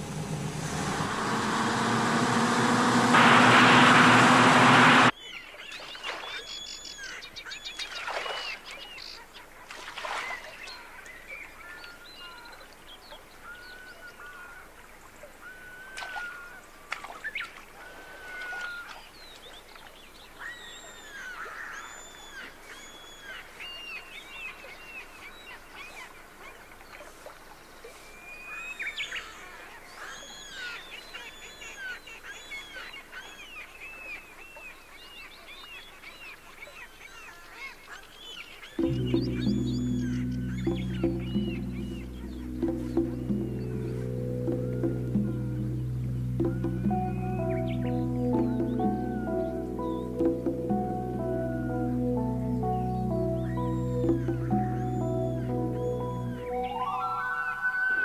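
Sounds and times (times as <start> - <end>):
birds chirping and calling: 38.5 - 58.0.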